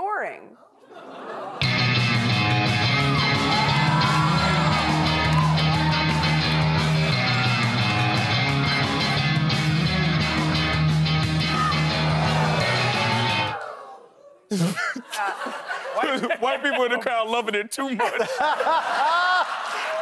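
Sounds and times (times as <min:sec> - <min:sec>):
rock guitar: 0:01.6 - 0:13.6.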